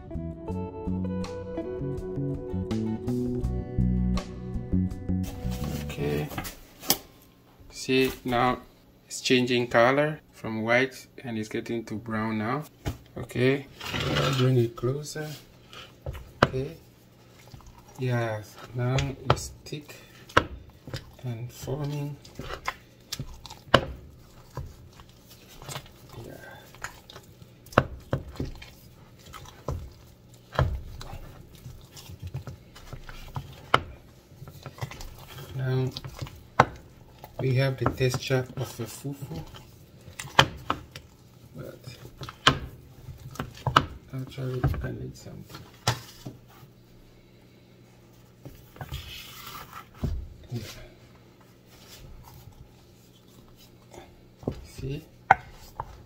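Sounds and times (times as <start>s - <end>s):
sticky squelching of stirred dough: 12.8s - 56.0s
wooden spatula scraping bowl: 13.5s - 46.7s, 48.4s - 51.0s, 51.6s - 56.0s.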